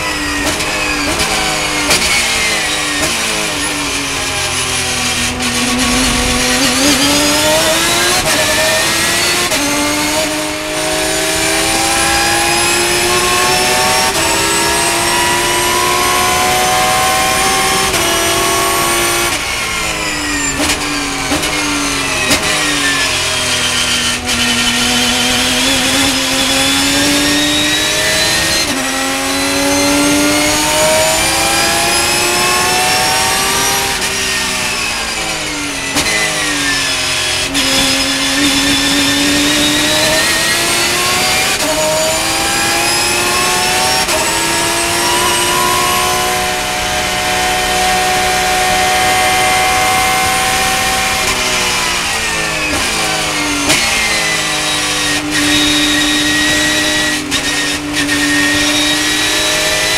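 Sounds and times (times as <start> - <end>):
engine blips on downshifts: 0.0 - 59.9
race car engine accelerating: 0.0 - 59.9.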